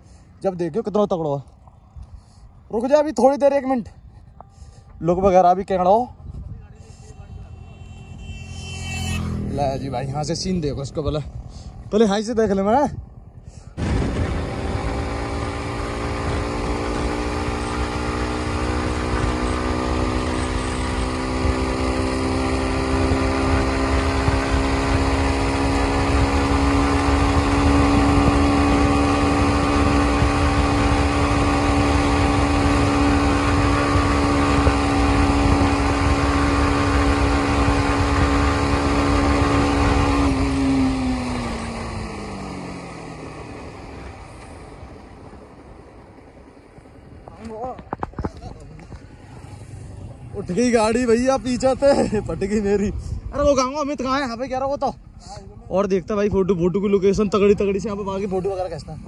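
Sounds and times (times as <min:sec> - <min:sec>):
motorcycle engine pulling hard: 0:13.8 - 0:45.2.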